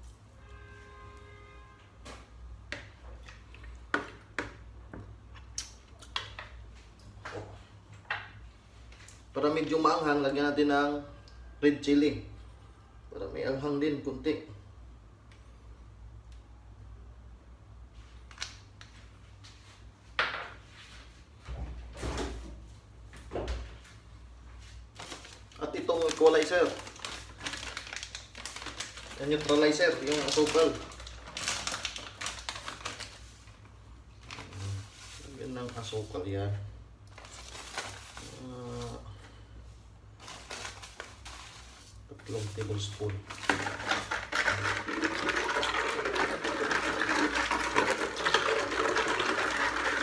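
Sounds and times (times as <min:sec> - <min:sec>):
metal spoon scraping plastic basin: 0:43.3 - 0:50.0.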